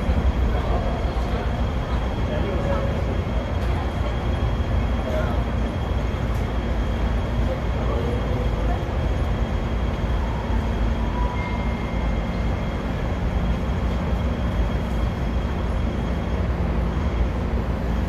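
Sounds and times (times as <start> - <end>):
city traffic rumble: 0.0 - 18.0.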